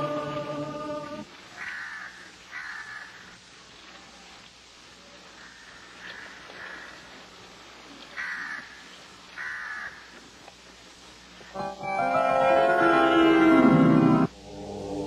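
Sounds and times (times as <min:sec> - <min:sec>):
loud music sustained chord: 0:00.0 - 0:01.2, 0:11.6 - 0:15.0.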